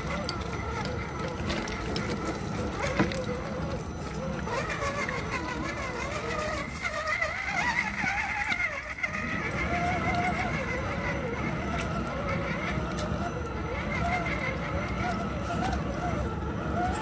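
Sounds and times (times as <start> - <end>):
electric motor whining: 0.0 - 17.0.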